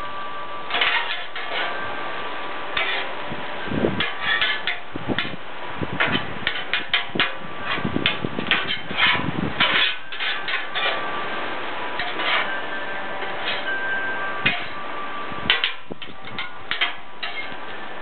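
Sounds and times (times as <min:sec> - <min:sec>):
metal spatulas scraping on griddle: 0:00.7 - 0:01.9, 0:02.7 - 0:03.2, 0:04.0 - 0:05.4, 0:06.0 - 0:11.2, 0:12.0 - 0:13.8, 0:14.4 - 0:14.8, 0:15.5 - 0:17.6.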